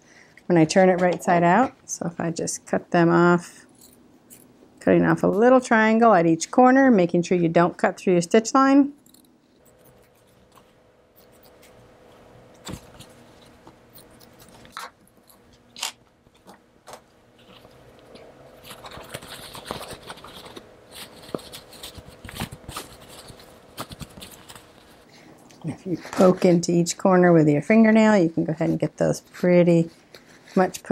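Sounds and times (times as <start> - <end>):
stiff fabric rustling and scraping: 28.6 - 30.9.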